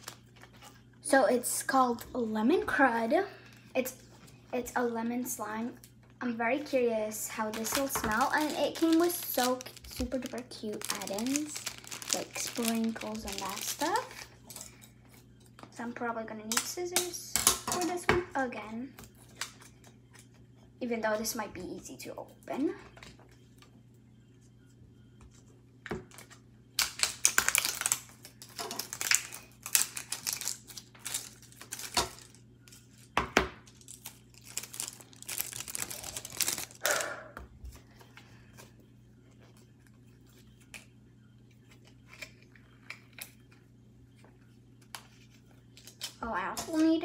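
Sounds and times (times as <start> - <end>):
plastic wrapping tearing and crinkling: 0.0 - 0.7, 7.3 - 14.6, 26.1 - 37.0, 45.7 - 46.2.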